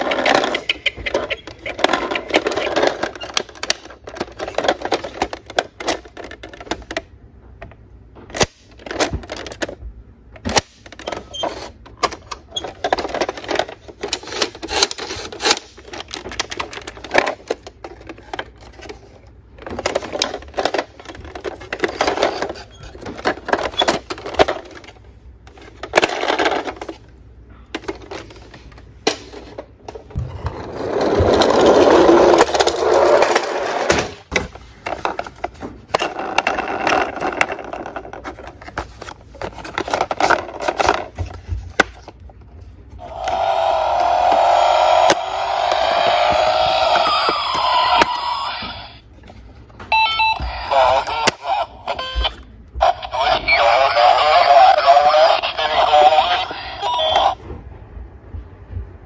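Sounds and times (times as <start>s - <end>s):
toy wheels rolling rumble: 0.0s - 7.0s, 30.1s - 41.4s, 43.0s - 49.0s
toy handled in cardboard box: 30.8s - 42.7s.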